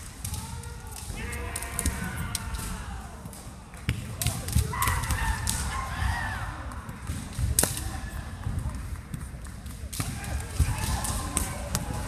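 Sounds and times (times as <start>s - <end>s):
chatter of the hall: 0.0s - 12.0s
bamboo swords clacking: 7.3s - 8.0s.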